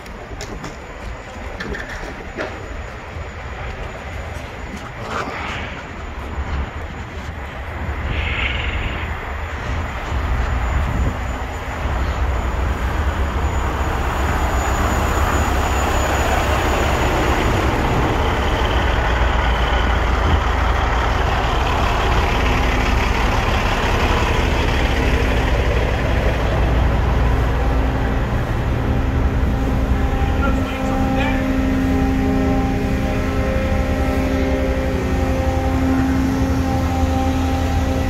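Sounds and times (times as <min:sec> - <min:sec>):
diesel truck engine idling: 0:14.5 - 0:38.0.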